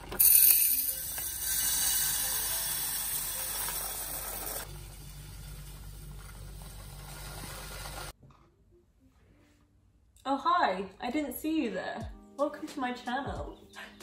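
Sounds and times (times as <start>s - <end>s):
grains pouring into glass jar: 0.2s - 4.6s.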